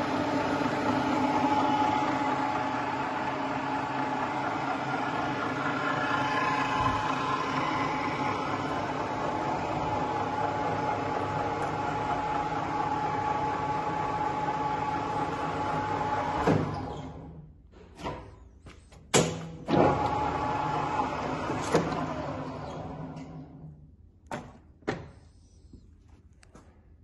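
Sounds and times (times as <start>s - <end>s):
lathe running with gear whine: 0.0s - 16.8s.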